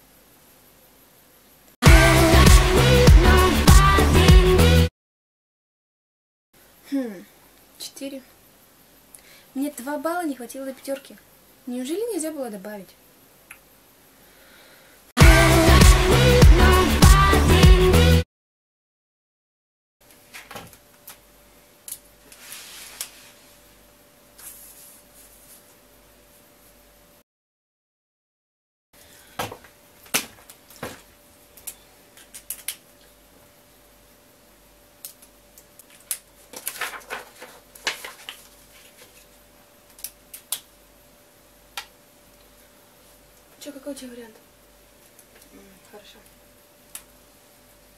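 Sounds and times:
faint steady hum: 0.0 - 1.8, 6.6 - 15.1, 29.0 - 47.9
pen and paper rustling: 22.3 - 23.5, 24.4 - 25.8, 35.2 - 40.1.

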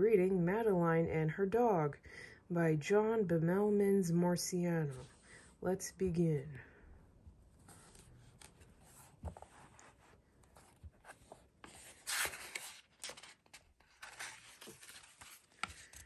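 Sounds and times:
book pages turning: 7.6 - 16.0.

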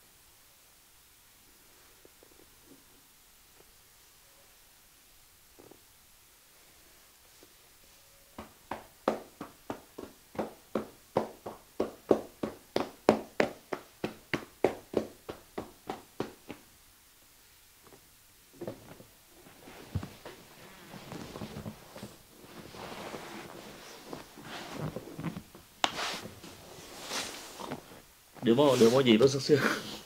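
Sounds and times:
hands tapping on a body: 8.4 - 16.7, 24.1 - 26.3
rustling: 17.8 - 30.0.

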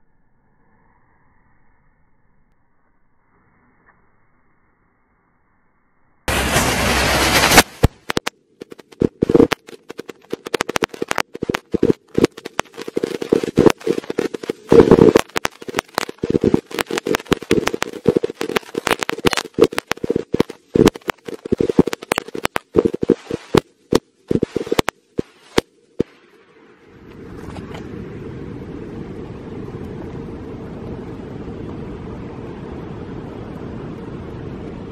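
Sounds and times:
firecrackers banging: 6.3 - 26.1.

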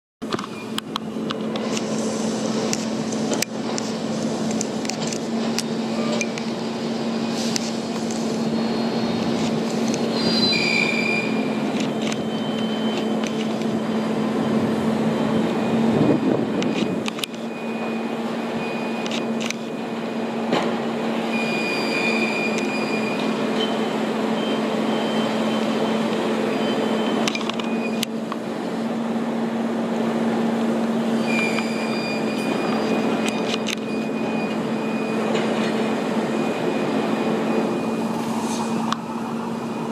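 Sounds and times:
diesel engine hum: 0.2 - 39.9
metallic squeals and clanks: 5.8 - 14.2, 21.3 - 28.1, 31.1 - 39.9.

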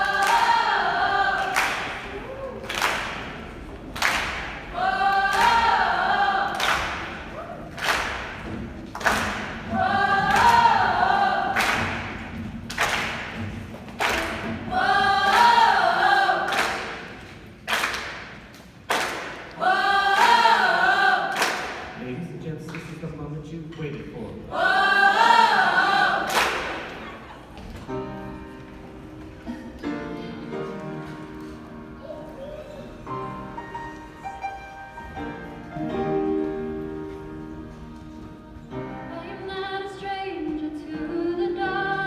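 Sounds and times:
sharp rhythmic hits: 2.9 - 23.6.

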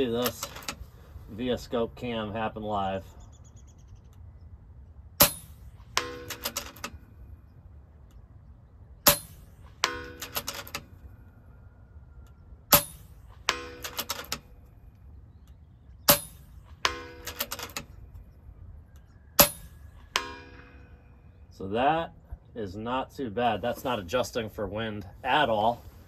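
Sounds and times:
air rifle shots: 5.2 - 7.1, 9.0 - 10.9, 12.7 - 14.5, 16.1 - 17.9, 19.4 - 20.9
metallic clicks and ringing: 5.2 - 8.2, 9.1 - 11.2, 12.2 - 14.8, 15.5 - 21.5.

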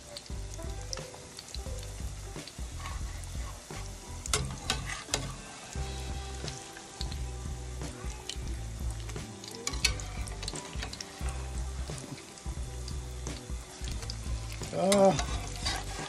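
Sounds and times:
patties sizzling in oil: 0.0 - 16.0
metal spatula scraping a pan: 2.7 - 7.0, 9.6 - 12.0, 13.7 - 16.0.

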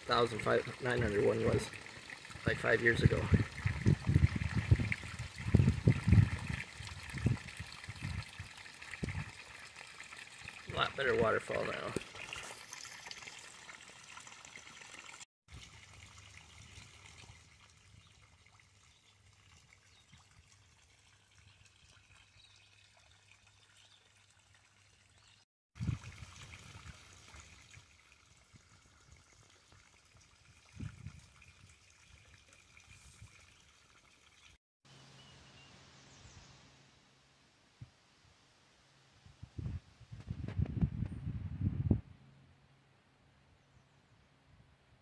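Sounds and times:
trickle and splash of waterfall: 0.0 - 35.3.

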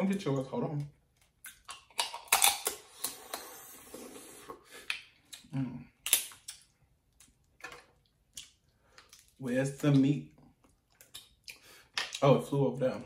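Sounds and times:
crab shell cracking: 1.2 - 2.8, 6.0 - 9.3.

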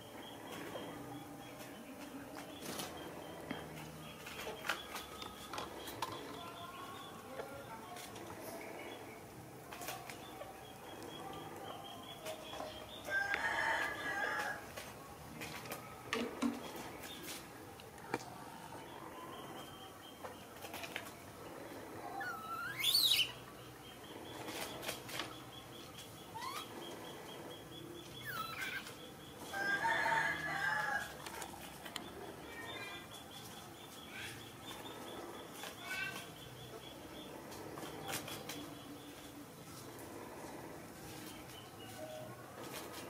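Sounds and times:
baby monkey squealing: 22.2 - 23.4, 26.4 - 26.7, 28.2 - 28.9.

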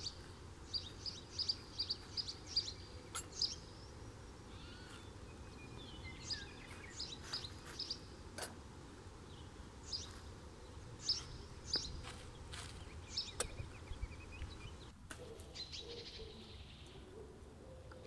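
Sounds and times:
small birds chirping: 0.0 - 18.0
dove cooing: 15.2 - 18.0.

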